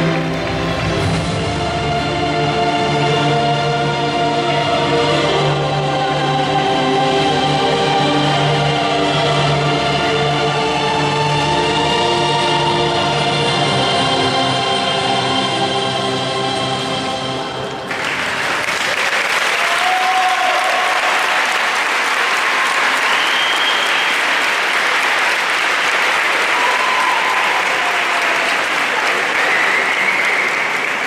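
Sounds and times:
audience applauding: 17.8s - 31.0s.

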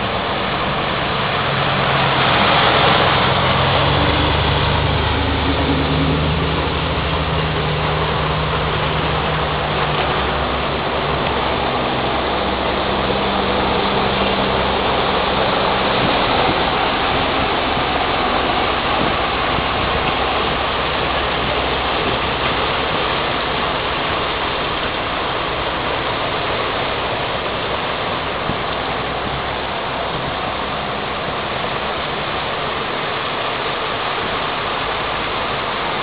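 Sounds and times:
car engine running low: 0.0s - 36.0s
stormwater rushing across street: 0.0s - 36.0s.

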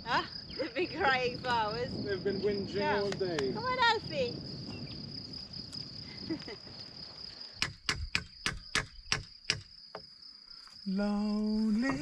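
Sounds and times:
crickets chirping: 0.0s - 12.0s
sharp knocks: 7.6s - 10.1s.

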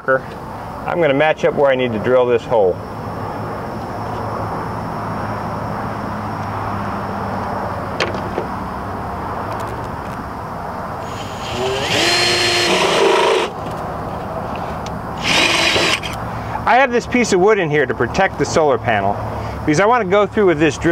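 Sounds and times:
cordless drill drilling metal: 11.0s - 13.6s, 15.2s - 16.2s.

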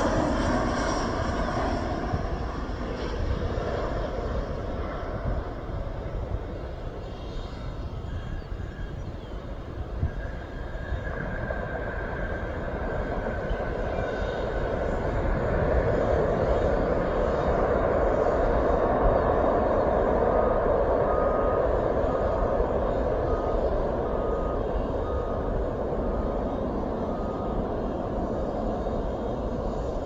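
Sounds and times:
distant jet engines rumbling: 0.0s - 30.0s
faint high whine: 0.0s - 30.0s.

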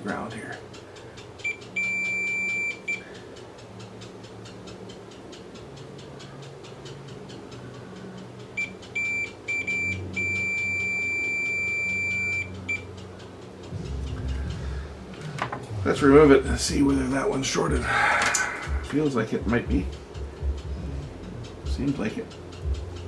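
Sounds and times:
multimeter high beep: 1.4s - 3.0s, 8.6s - 12.8s.

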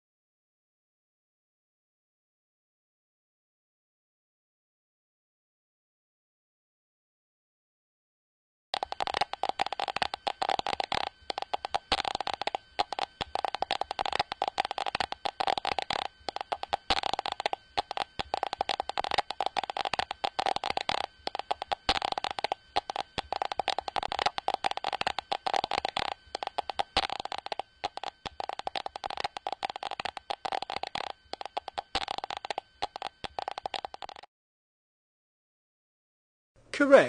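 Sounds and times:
geiger counter clicking: 8.8s - 34.3s.

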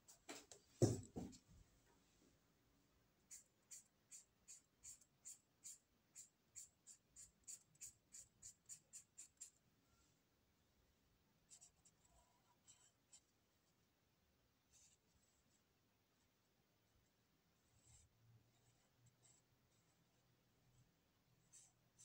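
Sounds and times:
marker scratching on paper: 3.3s - 9.6s, 11.5s - 13.3s, 17.6s - 20.8s, 21.4s - 22.0s.

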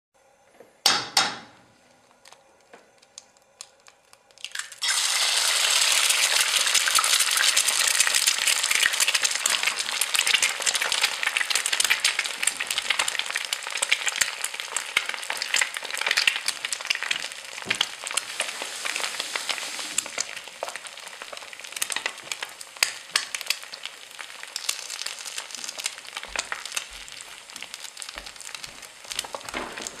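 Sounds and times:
pancake sizzling in hot oil: 4.3s - 30.0s.

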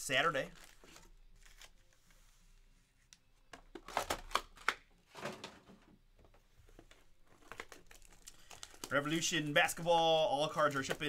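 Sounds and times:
card packs rustling: 0.1s - 2.1s, 3.5s - 5.9s, 6.6s - 11.0s.

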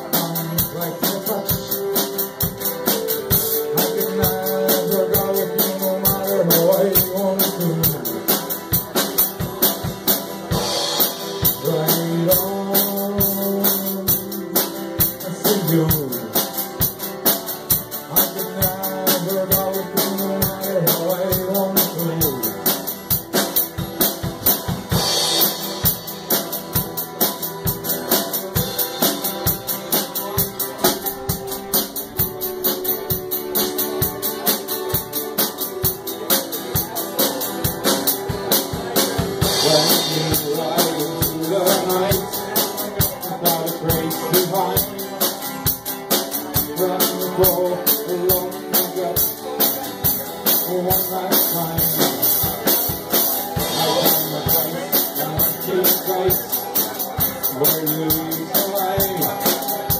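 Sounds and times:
held melody line bending: 0.0s - 9.7s
drum kit beat: 0.0s - 59.9s
live rock band playing: 0.0s - 59.9s.

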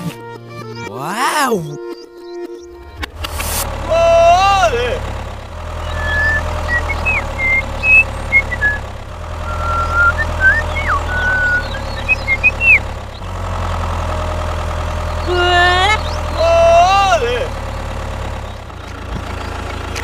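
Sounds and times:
high bird chirps: 1.5s - 2.8s, 5.7s - 13.3s, 16.0s - 16.4s
tractor engine idling: 2.2s - 20.0s.

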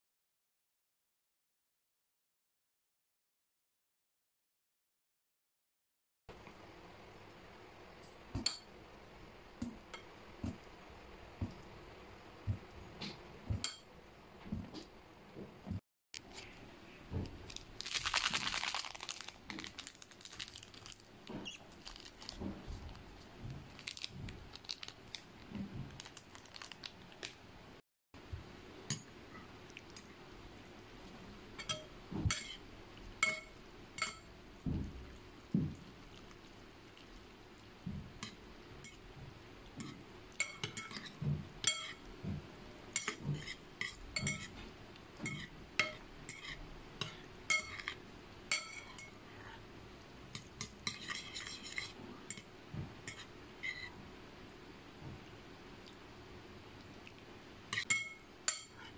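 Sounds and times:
plastic sachet crinkling: 17.3s - 23.0s, 23.7s - 27.4s.

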